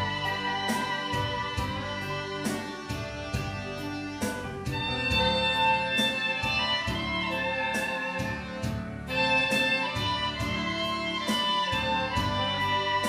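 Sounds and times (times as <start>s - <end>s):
accompaniment with steady beat: 0.0s - 13.0s
saxophones playing slow melody: 0.0s - 13.0s.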